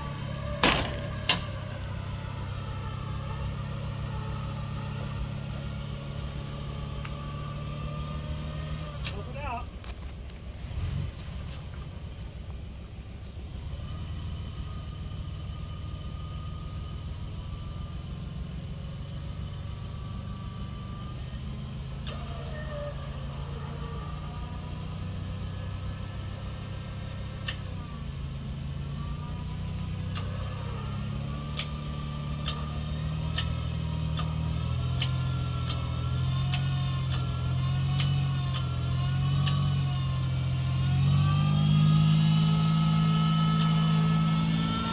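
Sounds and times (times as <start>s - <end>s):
engine running under load: 0.0s - 44.9s
sharp clicks: 31.5s - 31.8s, 38.0s - 38.7s, 39.4s - 39.7s.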